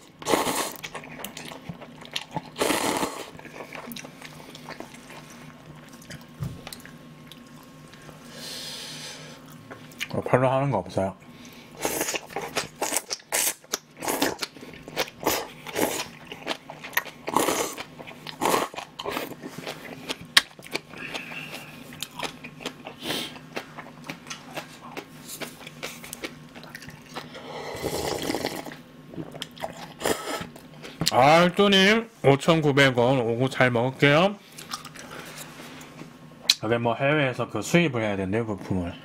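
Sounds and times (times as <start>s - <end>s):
slurping noodles: 0.2s - 1.5s, 2.3s - 5.4s, 11.8s - 16.2s, 17.3s - 20.2s, 27.2s - 28.8s
chewing with wet mouth clicks: 0.8s - 2.6s, 3.3s - 8.0s, 11.4s - 27.3s, 29.2s - 31.2s
slurping broth: 2.4s - 5.5s, 27.2s - 30.5s.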